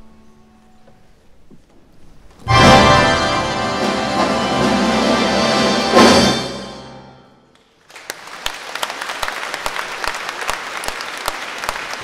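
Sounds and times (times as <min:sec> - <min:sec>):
accordion orchestra final chord: 0:02.5 - 0:07.1
audience applause: 0:07.6 - 0:12.0.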